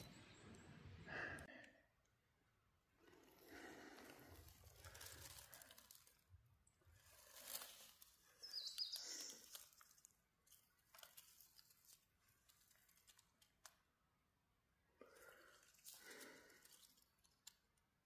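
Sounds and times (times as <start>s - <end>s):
dry leaves rustling and crackling: 3.6s - 13.8s, 15.2s - 17.6s.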